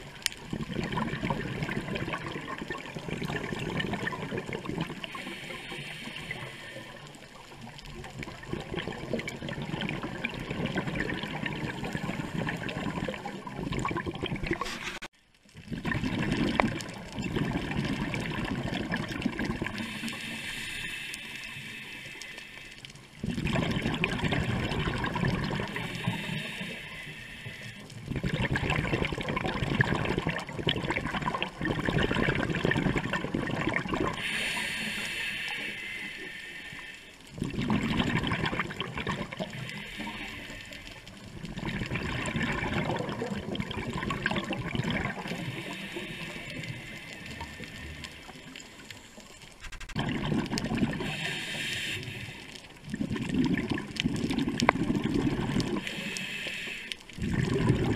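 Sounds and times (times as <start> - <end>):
exhaled bubbles gurgling: 0.0 - 57.9
scuba regulator breathing underwater: 1.3 - 7.6, 17.4 - 30.4, 31.7 - 57.9.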